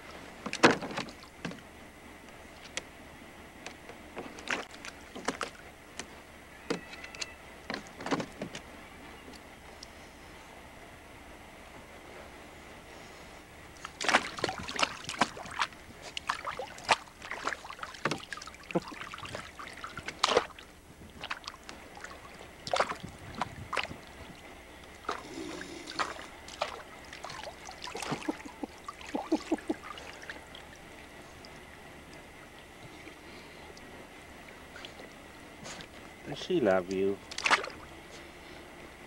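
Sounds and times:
water splashing in a pool: 0:04.3 - 0:05.8, 0:13.8 - 0:32.7, 0:33.7 - 0:35.9, 0:37.2 - 0:37.9.

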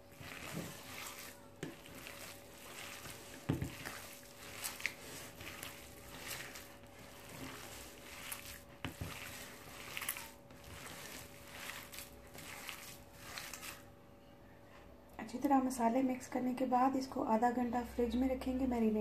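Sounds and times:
hands squishing minced meat: 0:00.0 - 0:13.9.

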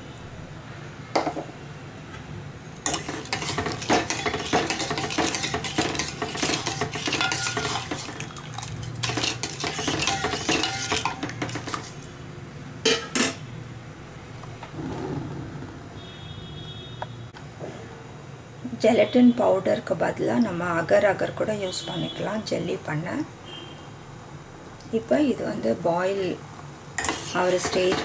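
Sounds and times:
spoon stirring in metal pan: 0:02.8 - 0:12.1, 0:27.0 - 0:28.0.

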